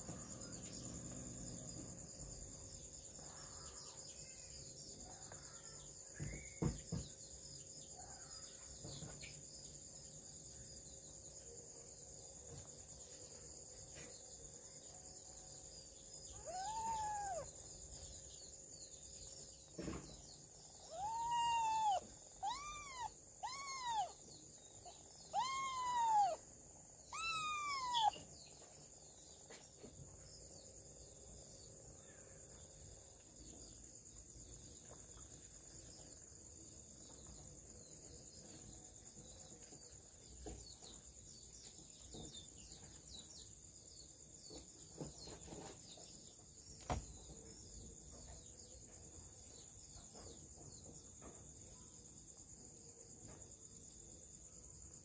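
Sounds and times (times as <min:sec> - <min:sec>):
cat meowing: 0:16.4 - 0:17.5, 0:20.9 - 0:24.2, 0:25.3 - 0:26.4, 0:27.1 - 0:28.2.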